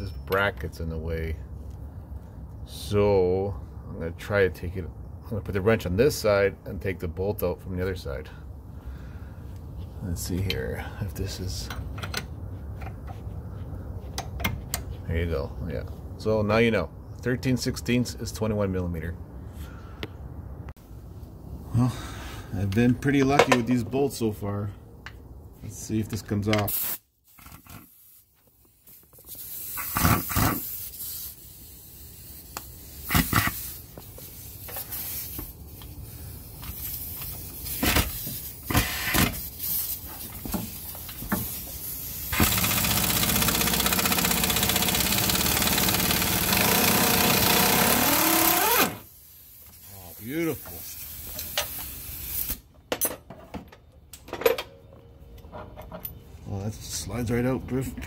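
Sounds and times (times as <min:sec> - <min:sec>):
air impact wrench: 0:26.7 - 0:35.5, 0:36.6 - 0:40.0, 0:40.7 - 0:49.6, 0:50.8 - 0:52.6.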